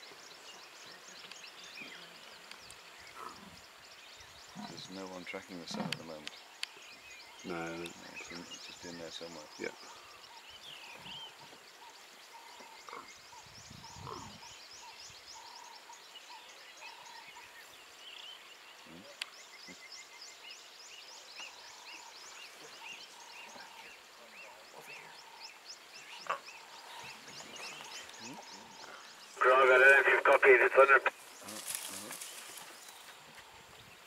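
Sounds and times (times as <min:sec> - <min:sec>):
low piping call: 0:27.8 - 0:31.2.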